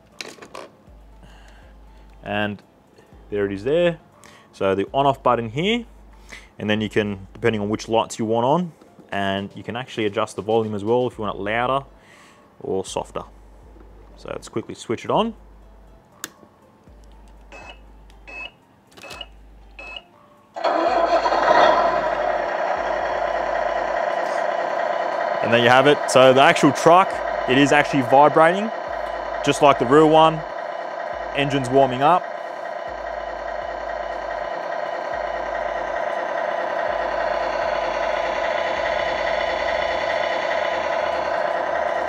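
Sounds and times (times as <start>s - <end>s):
simulated truck engine idling: 20.6s - 42.0s.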